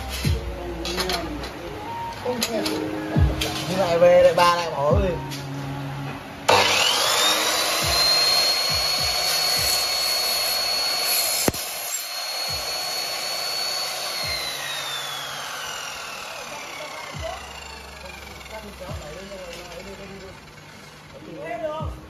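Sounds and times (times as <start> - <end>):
mitre saw motor whining: 0.0 - 21.8
sharp click: 11.4 - 12.0.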